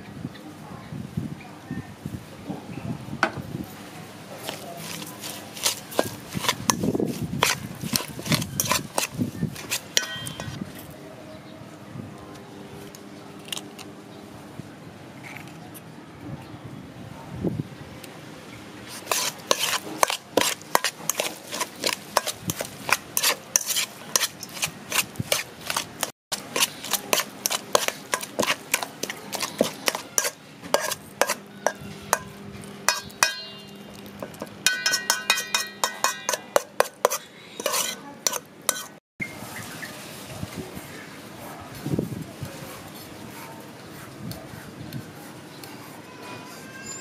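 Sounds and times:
spoon stirring and scraping in bowl: 4.4 - 10.7, 18.9 - 39.0
spoon clinking against metal bowl: 4.8 - 10.6, 19.0 - 39.0
metal bowl ringing: 9.9 - 10.6, 31.2 - 34.0, 34.6 - 36.6.

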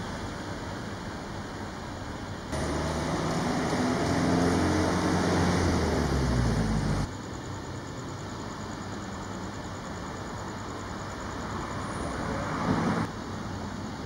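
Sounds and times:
diesel engine running: 2.5 - 7.1.

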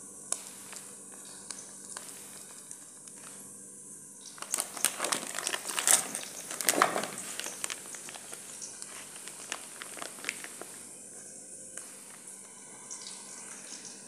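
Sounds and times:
plastic spice packet crinkling: 0.4 - 3.4, 4.2 - 10.9.

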